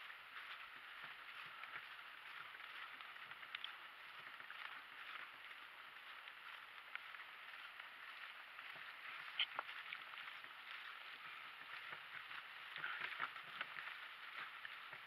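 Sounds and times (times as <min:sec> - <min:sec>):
cart wheels crunching: 0:00.0 - 0:15.0
hooves and cart knocking: 0:00.0 - 0:15.0.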